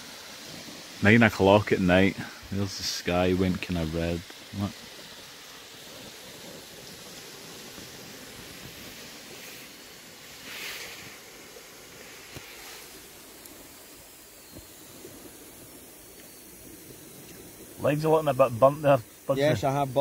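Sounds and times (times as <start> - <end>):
campfire crackling: 0.0 - 20.0
small waves washing on shore: 0.0 - 20.0.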